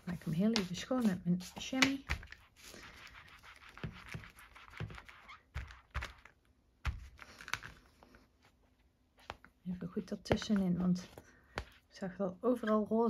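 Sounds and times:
stamp scrubbing on chamois: 0:00.1 - 0:02.3.

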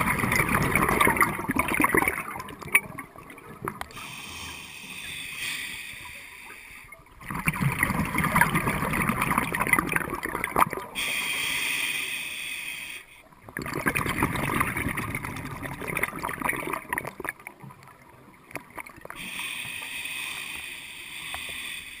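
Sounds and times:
exhaled air bubbling: 0:00.0 - 0:04.3, 0:06.8 - 0:11.2, 0:13.3 - 0:19.4
regulator inhale hiss: 0:03.9 - 0:07.0, 0:11.0 - 0:13.3, 0:19.2 - 0:22.0.

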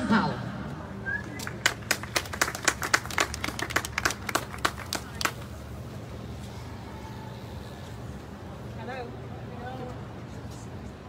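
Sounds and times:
people clapping: 0:01.2 - 0:05.7.

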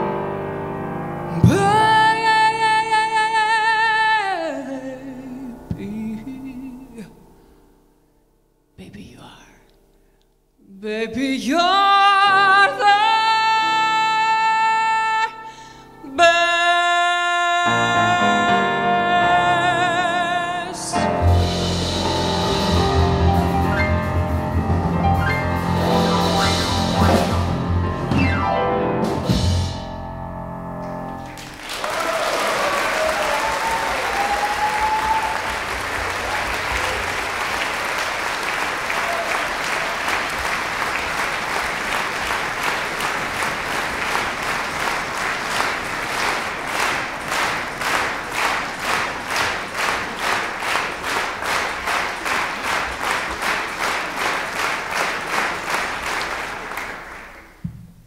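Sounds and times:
band and orchestra held chord: 0:20.7 - 0:30.1
audience applauding: 0:31.2 - 0:57.6
rhythmic clapping in unison: 0:31.2 - 0:57.6.

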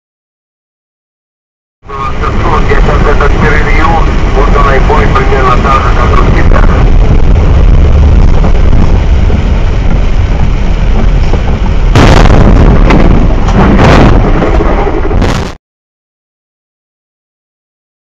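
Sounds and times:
truck crash bangs: 0:11.9 - 0:14.4.

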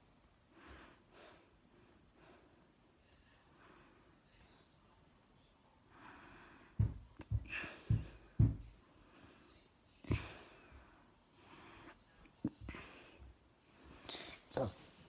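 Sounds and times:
person breathing close to microphone: 0:05.9 - 0:12.0.

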